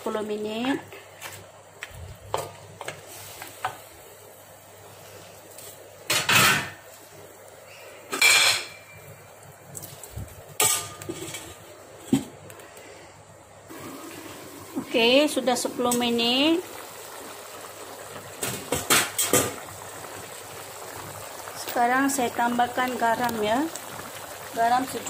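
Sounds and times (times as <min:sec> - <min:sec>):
metal lid clanking on wok: 0:10.6 - 0:11.5.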